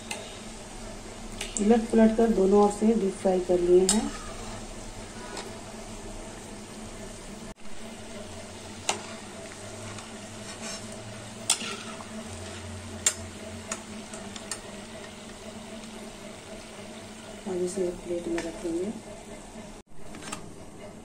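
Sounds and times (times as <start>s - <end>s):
deep-frying sizzle in oil: 0.0s - 19.8s
utensil clicking against pan: 13.0s - 15.1s.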